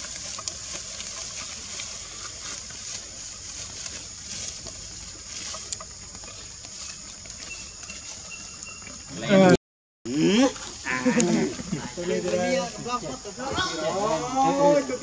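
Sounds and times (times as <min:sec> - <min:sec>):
faint clicks and rustles: 0:00.0 - 0:09.1
steady high hiss: 0:10.1 - 0:15.0.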